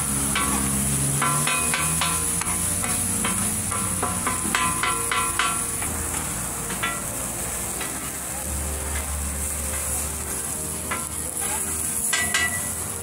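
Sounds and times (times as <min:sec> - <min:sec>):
metal spatulas clanking on griddle: 0:00.0 - 0:07.1, 0:07.7 - 0:08.1, 0:10.9 - 0:13.0
food sizzling: 0:00.0 - 0:13.0.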